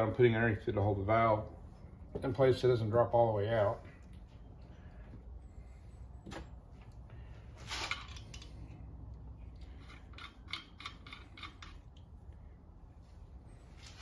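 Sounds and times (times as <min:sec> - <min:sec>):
metal scrape: 0:07.6 - 0:08.6
metal tool clicking: 0:09.7 - 0:11.9.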